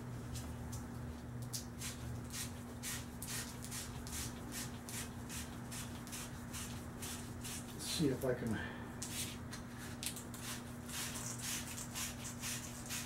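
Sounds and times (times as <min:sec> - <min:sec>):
steady low hum: 0:00.0 - 0:13.0
sandpaper rasping on metal: 0:10.4 - 0:13.0.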